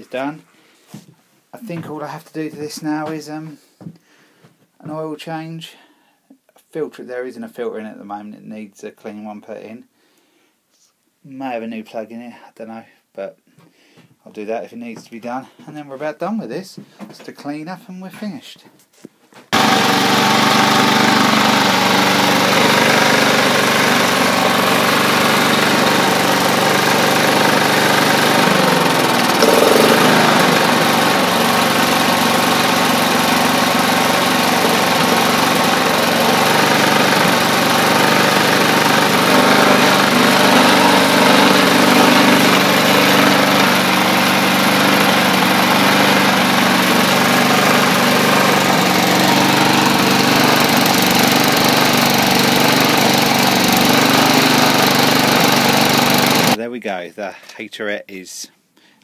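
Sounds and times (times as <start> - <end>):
lawn mower engine running: 19.5 - 56.6.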